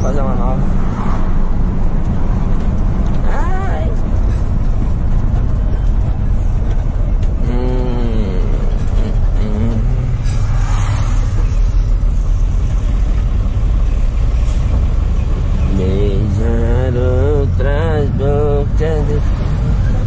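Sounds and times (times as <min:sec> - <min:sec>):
road noise: 0:00.0 - 0:20.0
truck engine rumble: 0:00.0 - 0:20.0
person humming: 0:07.4 - 0:10.5, 0:15.7 - 0:19.2.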